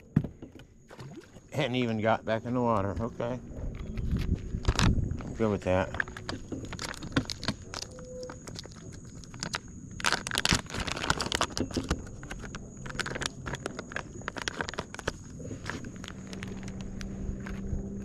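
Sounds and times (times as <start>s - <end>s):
clicks and taps on wooden dock: 0.0s - 1.2s.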